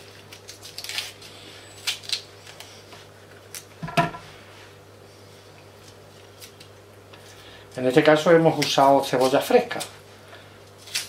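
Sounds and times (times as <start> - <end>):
faint steady hum: 0.0 - 11.0
onion skin peeling clicks: 0.2 - 2.7.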